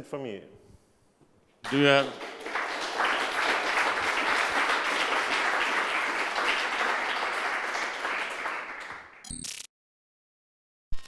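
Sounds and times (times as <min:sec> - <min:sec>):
audience clapping: 0:01.6 - 0:09.2.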